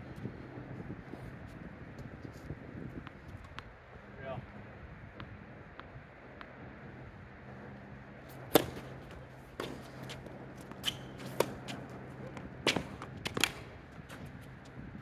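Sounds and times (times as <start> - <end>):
tennis ball bouncing: 5.1 - 6.6, 8.3 - 14.5
racket striking tennis ball: 8.3 - 14.3.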